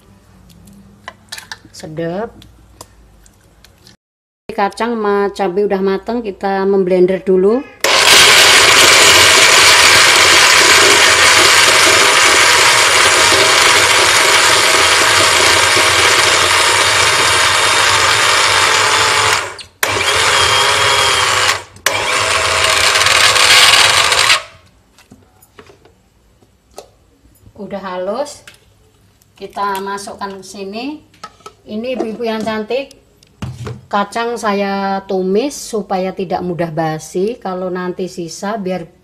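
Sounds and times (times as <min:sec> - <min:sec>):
electric blender grinding: 0:07.8 - 0:24.6.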